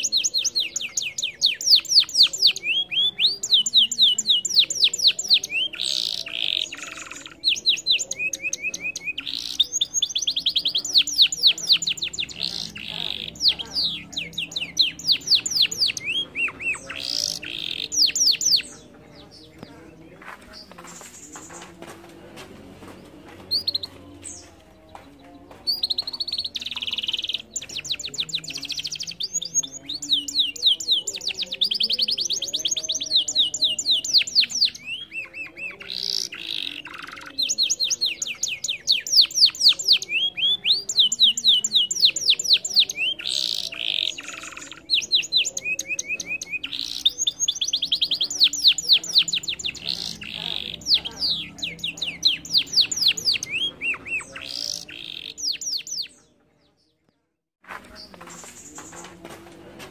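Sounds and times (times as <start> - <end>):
canary singing trilled song: 0.0 - 21.7, 23.3 - 57.2.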